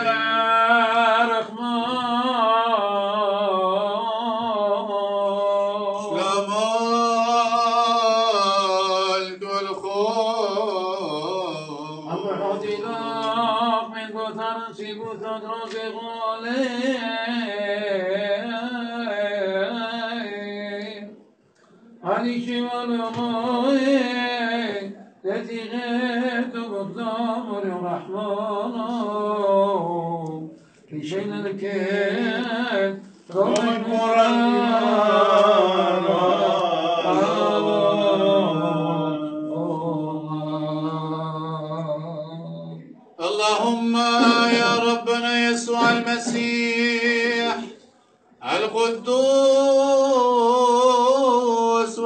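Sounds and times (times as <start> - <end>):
man chanting liturgy: 0.0 - 21.1, 22.0 - 47.8, 48.4 - 52.0
voices chanting slow melody: 33.3 - 39.8.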